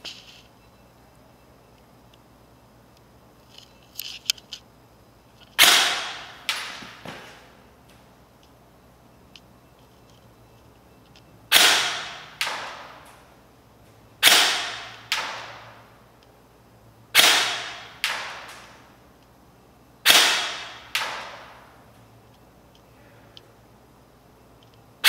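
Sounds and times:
rifle shots with echo: 5.6s - 7.0s, 11.5s - 13.2s, 14.2s - 15.8s, 17.1s - 18.9s, 20.0s - 21.7s.

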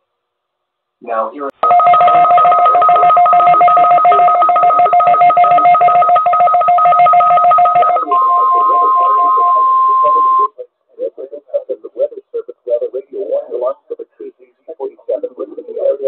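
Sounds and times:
buzzing digital data tones: 1.6s - 10.5s
steady alert tone: 1.6s - 10.5s.

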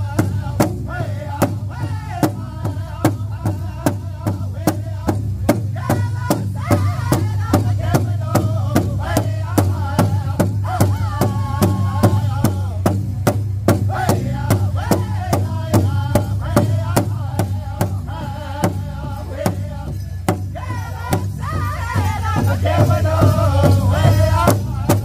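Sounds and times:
high wavering voices singing: 17.8s - 25.0s.

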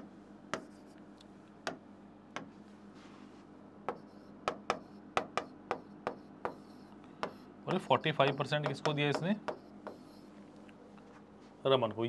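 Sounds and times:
steady low hum: 0.0s - 12.0s
marker tapping on whiteboard: 0.5s - 0.8s, 3.9s - 10.2s
marker strokes on whiteboard: 0.5s - 1.0s, 2.4s - 10.5s.

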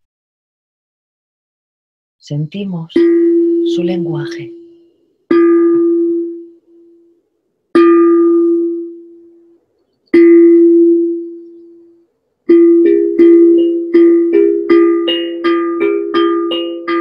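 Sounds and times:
steel tongue drum ringing: 3.0s - 7.1s, 7.8s - 9.4s, 10.2s - 17.0s.

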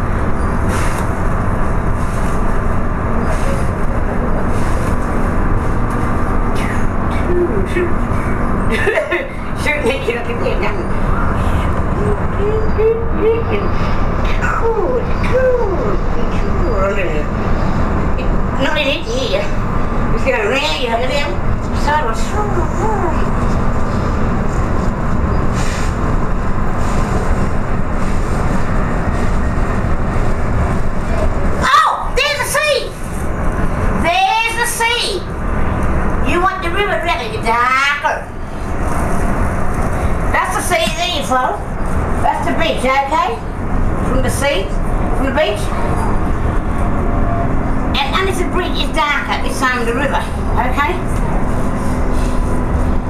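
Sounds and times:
train running rumble: 0.0s - 53.0s
short hisses: 25.5s - 26.0s.

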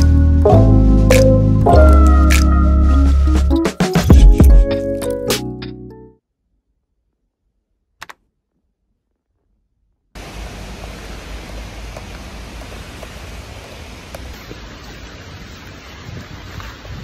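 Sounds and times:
rain on wet street: 10.2s - 17.0s.

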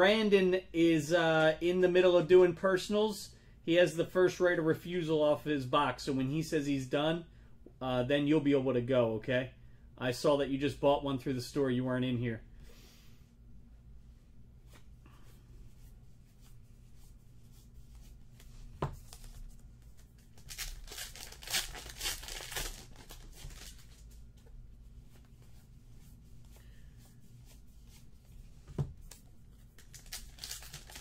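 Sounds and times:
cards being handled: 14.6s - 31.0s
card pack wrappers tearing: 20.2s - 24.2s, 29.8s - 31.0s.

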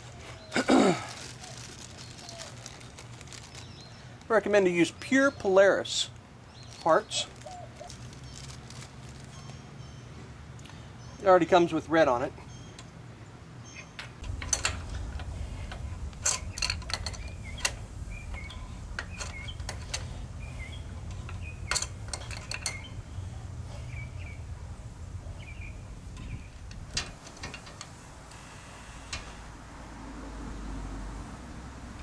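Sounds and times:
birds chirping: 0.0s - 29.6s
low steady rumble: 14.1s - 32.0s.

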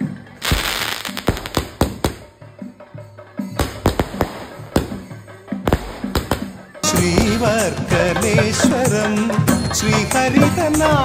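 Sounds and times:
fireworks hissing and crackling: 0.4s - 2.5s, 3.6s - 7.9s
fireworks sharp bangs: 0.4s - 2.5s, 3.6s - 8.9s
devotional song: 5.6s - 11.0s.

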